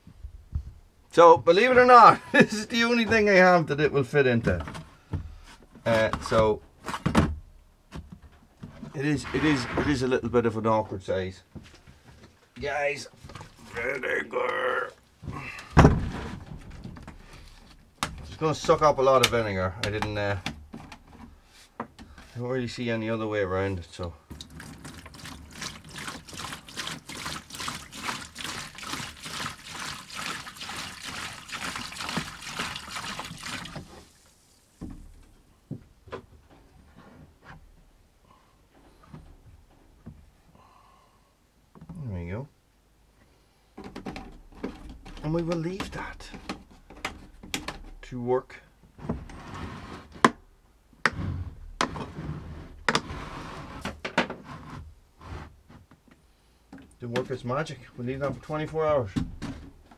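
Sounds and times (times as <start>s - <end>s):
rough scraping: 9.0s - 10.2s
liquid pouring and splashing: 24.3s - 35.2s
small drips and splashes: 24.3s - 35.4s.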